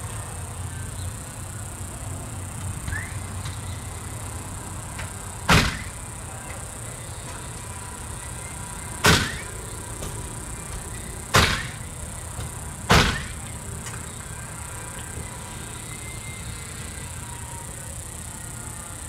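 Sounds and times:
faint background music: 0.0 - 19.0
nails being hammered: 5.5 - 6.0, 9.0 - 11.9, 12.5 - 13.4.

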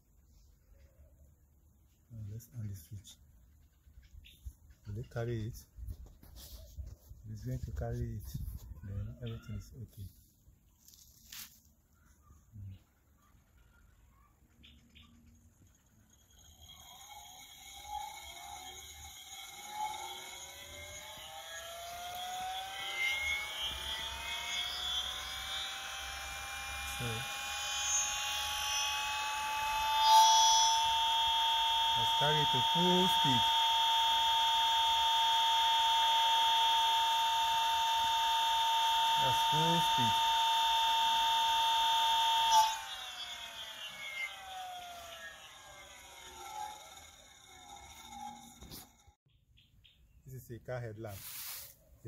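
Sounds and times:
electric motor whine rising: 15.3 - 49.2.

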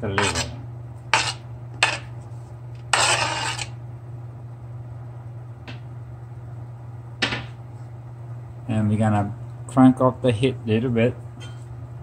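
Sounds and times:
steady low hum: 0.0 - 12.0
liver scraped off cutting board: 0.2 - 2.1, 2.9 - 3.7.

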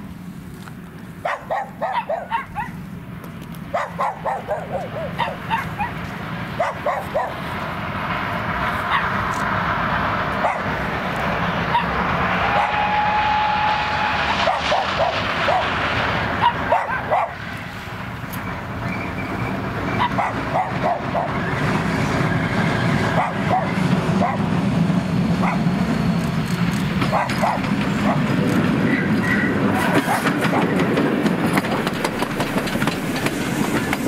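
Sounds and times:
steam locomotive rumbling: 0.0 - 34.0
dog barking: 1.2 - 2.8, 3.7 - 6.0, 6.6 - 7.4, 8.9 - 9.1, 10.4 - 10.7, 11.7 - 12.0, 12.6 - 12.8, 14.4 - 15.8, 16.4 - 17.4, 20.0 - 21.4, 23.2 - 24.5, 25.4 - 25.6, 27.1 - 28.3, 29.9 - 30.8.

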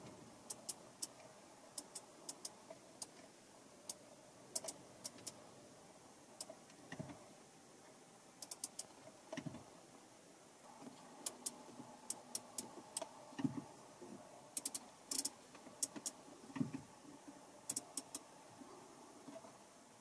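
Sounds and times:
rotary controller plastic clicks: 0.4 - 1.2, 1.8 - 3.2, 4.6 - 5.4, 8.4 - 9.6, 10.8 - 13.6, 14.6 - 16.9, 17.7 - 18.3.

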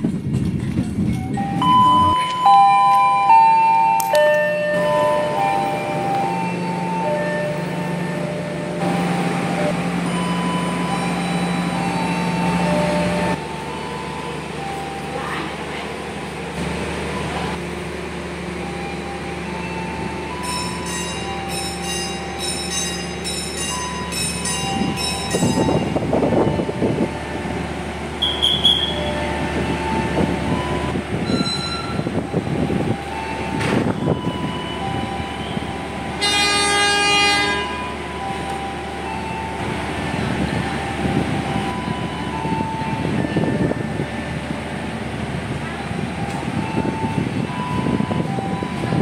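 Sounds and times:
train rumbling with squeals: 0.0 - 49.0
high ringing: 20.3 - 26.4
train horn: 36.2 - 38.0.

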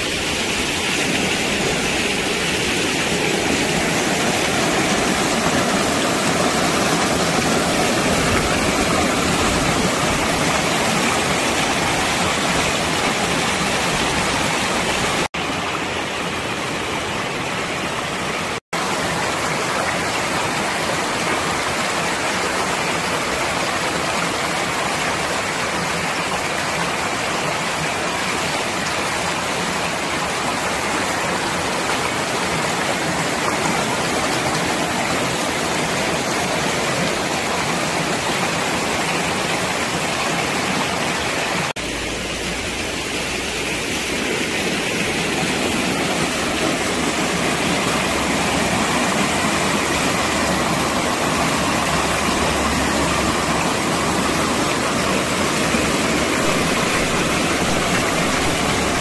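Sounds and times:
stream rushing over rocks: 0.0 - 59.0.

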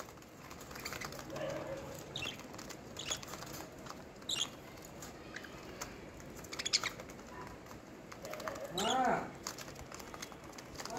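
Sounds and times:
budgerigars chirping: 0.6 - 3.6, 4.2 - 4.6, 6.4 - 7.2.

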